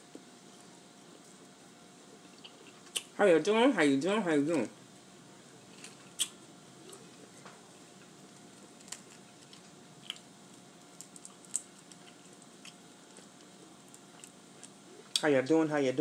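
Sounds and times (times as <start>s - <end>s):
shells cracking and crackling: 8.4s - 14.8s.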